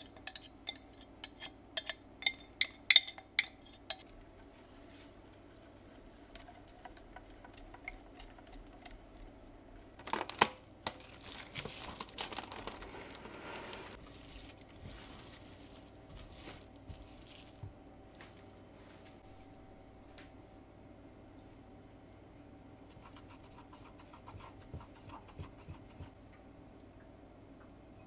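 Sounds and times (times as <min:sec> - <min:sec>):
cling film crinkling: 0:10.0 - 0:18.4.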